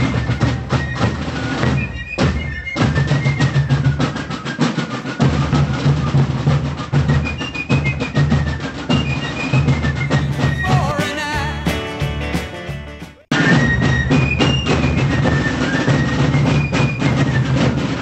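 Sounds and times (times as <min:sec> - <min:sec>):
snare drum rolls: 0:00.0 - 0:18.0
bass drum: 0:10.1 - 0:15.2
high fife melody: 0:10.2 - 0:13.3.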